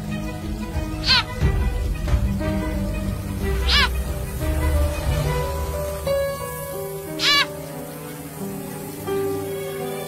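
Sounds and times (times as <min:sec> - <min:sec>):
music with long held notes: 0:00.0 - 0:10.0
low rumble: 0:00.4 - 0:07.0.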